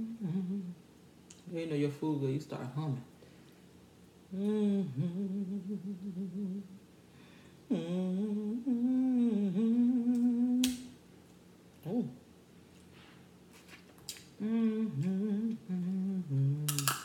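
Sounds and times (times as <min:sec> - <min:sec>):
woman humming: 0:00.0 - 0:00.8, 0:04.3 - 0:06.8, 0:07.7 - 0:10.9, 0:11.8 - 0:12.2, 0:14.4 - 0:16.9.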